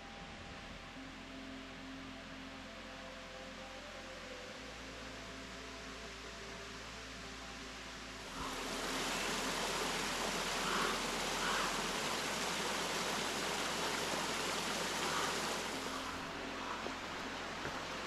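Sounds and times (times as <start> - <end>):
steady rushing hiss: 4.3 - 18.0.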